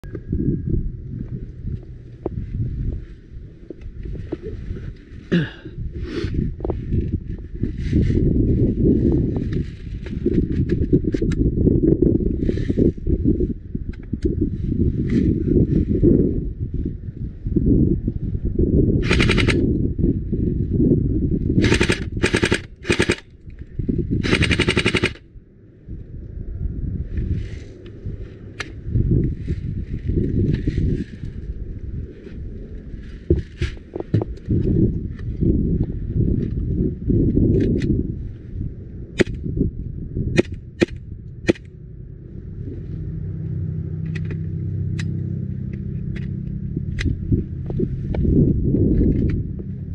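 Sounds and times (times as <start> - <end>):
low rumble: 0.0 - 49.9
wind buffeting microphone: 0.0 - 49.9
airsoft gun full-auto bursts: 19.0 - 19.6, 21.6 - 23.3, 24.2 - 25.2.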